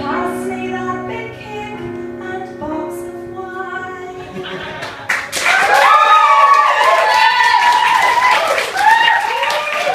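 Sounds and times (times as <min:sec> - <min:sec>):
audience applause: 0:04.8 - 0:09.9.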